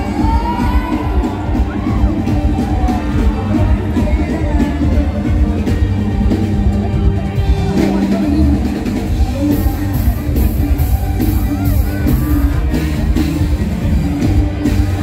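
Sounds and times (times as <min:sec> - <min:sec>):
person singing: 0:00.0 - 0:12.9
live band music with heavy bass: 0:00.0 - 0:15.0.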